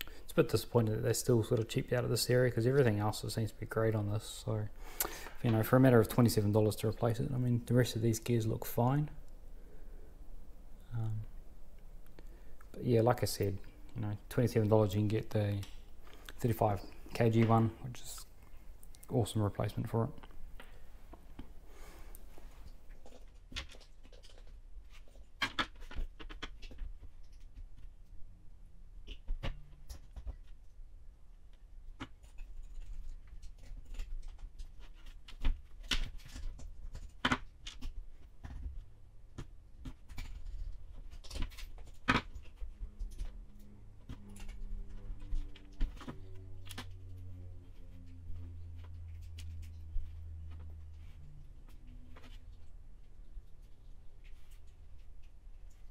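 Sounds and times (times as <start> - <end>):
faint low hum: 0.0 - 55.9
small parts and tools clicking: 32.0 - 38.7.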